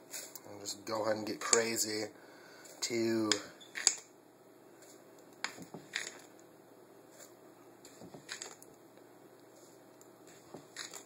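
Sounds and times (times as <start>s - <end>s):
spoon scooping sugar: 9.5s - 11.0s.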